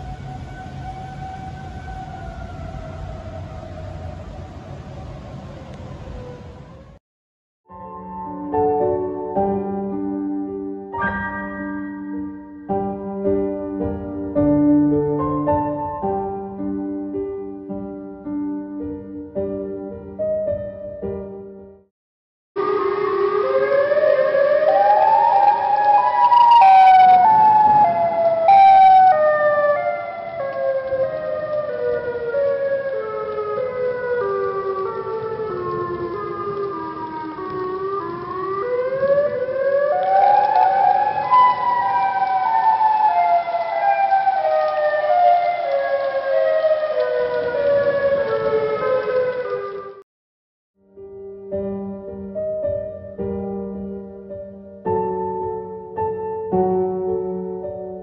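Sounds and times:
outdoor warning siren wailing: 0.0s - 7.0s, 22.6s - 50.0s.

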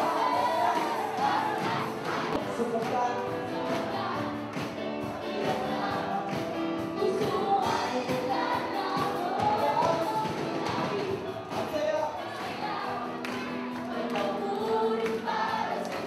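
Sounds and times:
music with steady beat: 0.0s - 16.0s
upbeat praise song singing: 0.0s - 16.0s.

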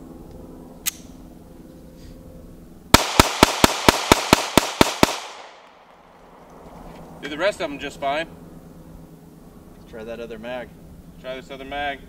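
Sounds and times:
sharp click: 0.8s - 1.1s
pistol shots: 3.0s - 6.0s.

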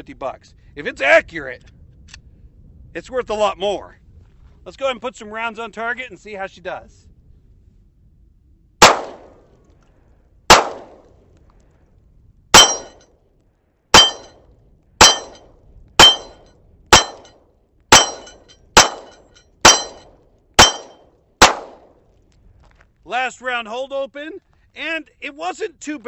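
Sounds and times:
pistol shots: 8.8s - 9.4s, 10.5s - 11.1s, 12.6s - 13.0s, 13.9s - 14.3s, 15.0s - 15.4s, 16.0s - 17.3s, 17.9s - 22.0s.

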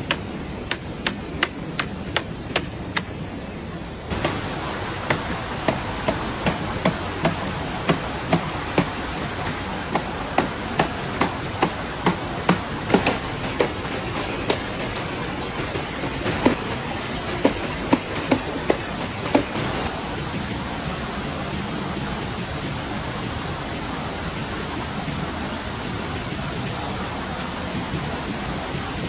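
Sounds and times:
rhythmic chopping strikes: 0.0s - 3.2s, 4.1s - 19.9s
rushing water: 0.0s - 29.0s.

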